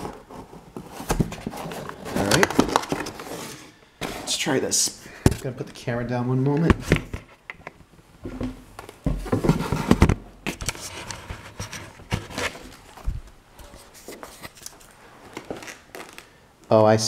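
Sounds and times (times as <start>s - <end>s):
cardboard box handled: 0.0s - 4.4s, 8.3s - 14.6s.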